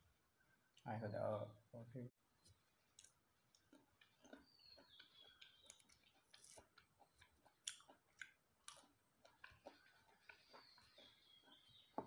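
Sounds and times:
fruit pulled apart and chewed: 2.9 - 11.8.

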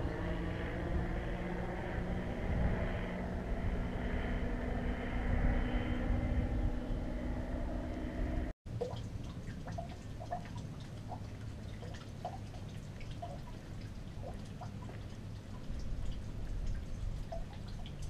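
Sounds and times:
engine-like hum: 0.0 - 18.0
water dripping into stone trough: 8.7 - 18.0.

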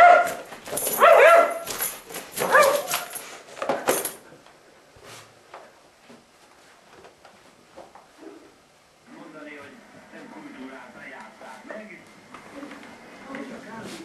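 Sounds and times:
dog-like barking yelps: 0.0 - 0.4, 1.0 - 1.7, 2.4 - 3.1.

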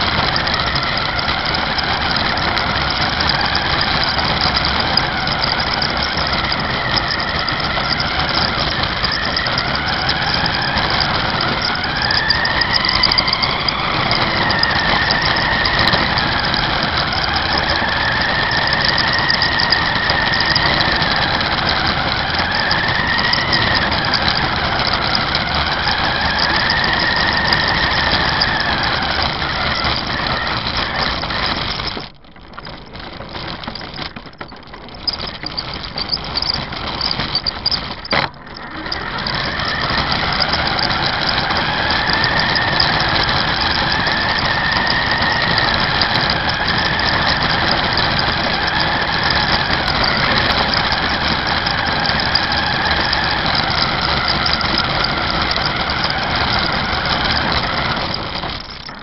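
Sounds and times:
toy car electric motor whining: 0.0 - 59.0.

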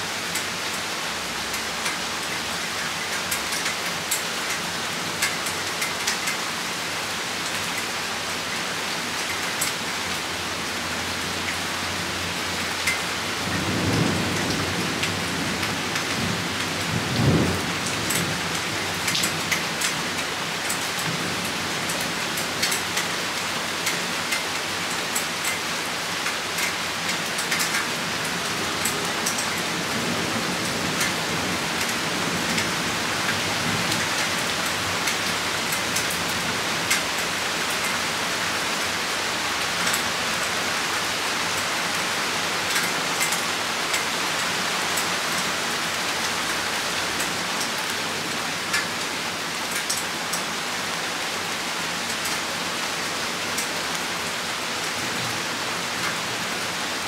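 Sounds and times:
rain falling: 0.0 - 57.0
sharp raindrop ticks: 1.5 - 6.5, 12.6 - 38.0, 39.7 - 40.1, 42.6 - 45.5, 46.1 - 48.0, 48.6 - 49.0, 49.7 - 50.5.

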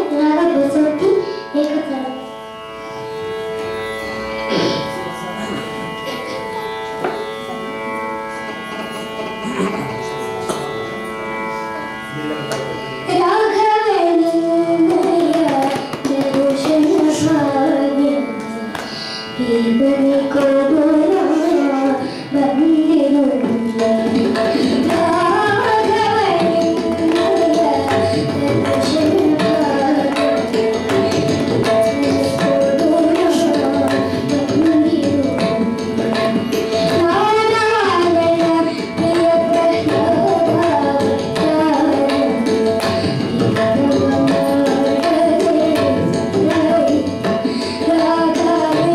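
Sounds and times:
boy singing devotional song: 0.0 - 2.2, 13.1 - 48.9
shruti box drone: 0.0 - 48.9
tabla strokes: 3.5 - 7.5, 8.3 - 11.8, 12.4 - 48.9.

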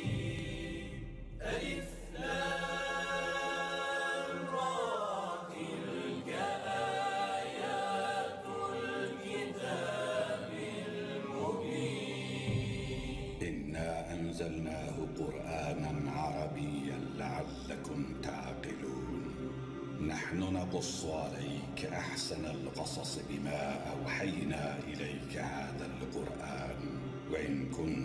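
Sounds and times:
slow vocal chanting: 0.0 - 28.0.

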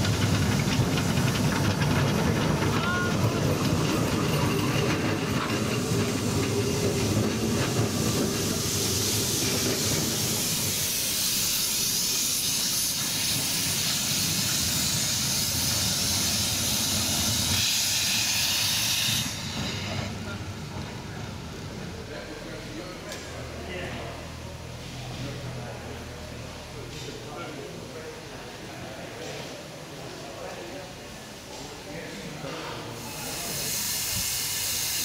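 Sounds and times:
steam hissing: 0.0 - 23.0, 31.4 - 35.0.

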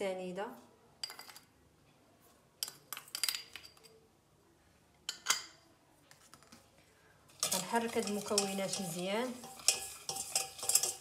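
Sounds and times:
metal spoon clinking on bowls: 1.0 - 1.5, 2.6 - 4.0, 5.1 - 5.6, 7.3 - 11.0.

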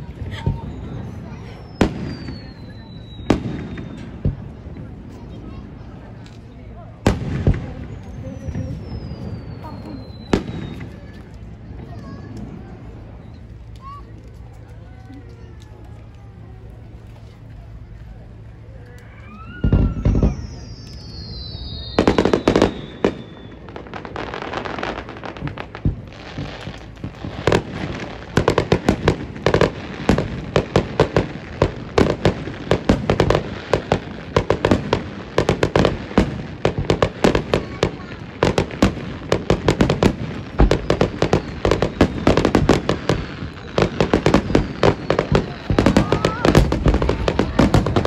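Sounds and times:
fireworks bangs and crackles: 0.0 - 48.0
firework whistle: 0.3 - 4.6, 7.6 - 11.2, 18.8 - 25.4, 39.3 - 48.0.

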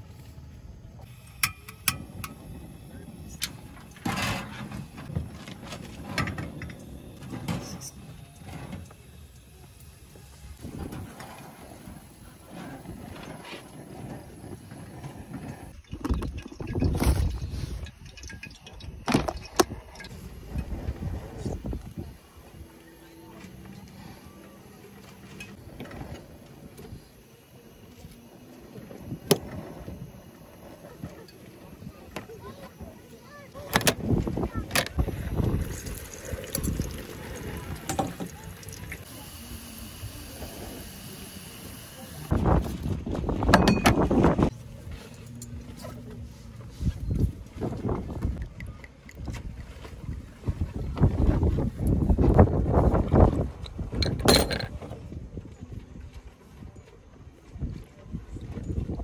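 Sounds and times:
metal clattering and scraping: 3.3 - 9.0
utensils and dishes clicking: 15.8 - 20.7.

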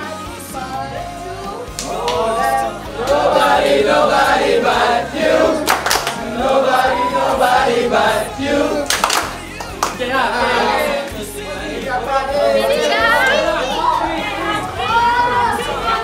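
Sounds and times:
men singing together: 0.0 - 14.6
sharp claps or shouts: 1.7 - 2.4, 5.7 - 6.2, 8.8 - 10.1.

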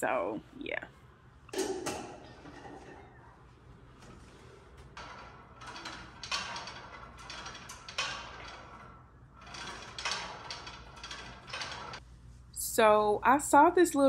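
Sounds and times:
exercise machine scraping strokes: 1.7 - 12.3.

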